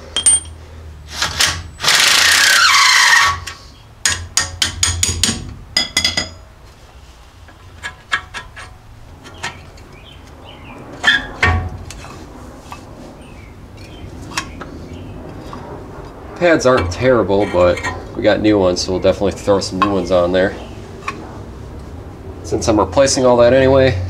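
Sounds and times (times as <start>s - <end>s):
metal clicks and clinks: 0.1s - 0.6s
power tool running: 1.8s - 2.7s.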